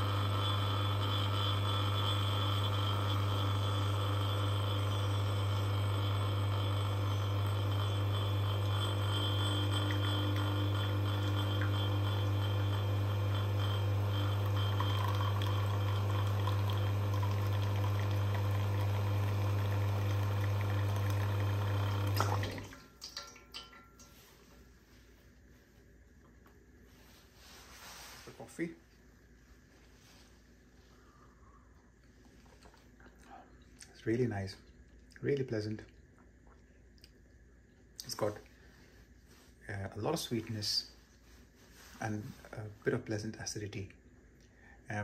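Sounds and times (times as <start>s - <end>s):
espresso machine pump humming: 0.0s - 22.7s.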